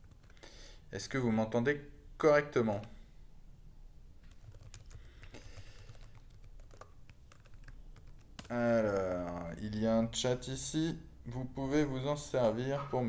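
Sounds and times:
faint keyboard typing: 0.0s - 0.5s, 2.6s - 3.0s, 4.2s - 9.6s.

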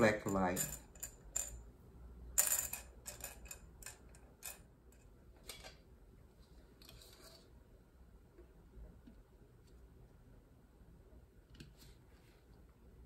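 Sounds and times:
soft rustle: 11.6s - 12.8s.

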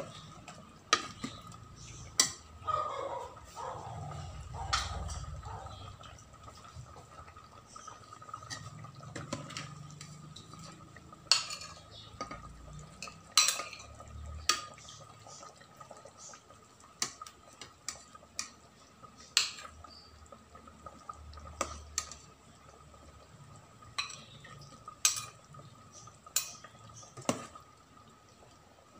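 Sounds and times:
metal ladle clinking against pot: 11.3s - 11.9s, 13.0s - 13.9s, 25.0s - 25.4s.

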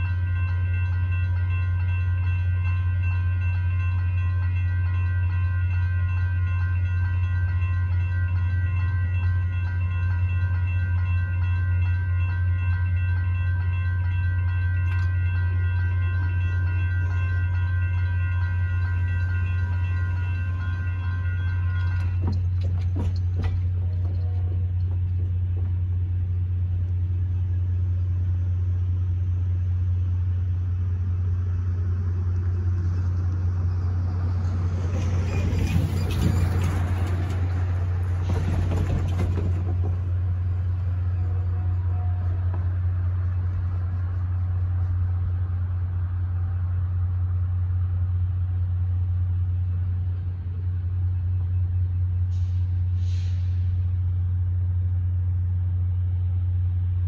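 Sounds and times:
cars driving over railroad crossing: 0.0s - 26.8s, 30.8s - 44.2s
short hiss: 52.3s - 53.8s.

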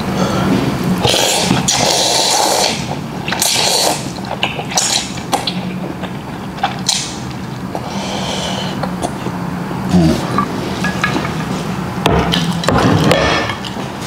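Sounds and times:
slurping noodles: 1.0s - 7.1s.

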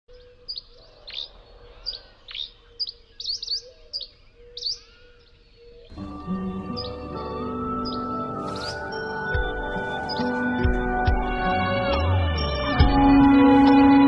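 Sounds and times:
small birds chirping: 0.1s - 14.0s
background music: 5.9s - 14.0s.

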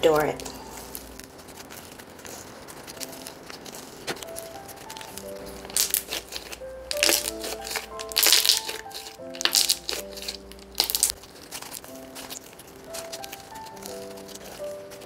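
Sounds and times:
soft background music: 0.0s - 15.0s
slime squishing and popping: 0.4s - 15.0s.

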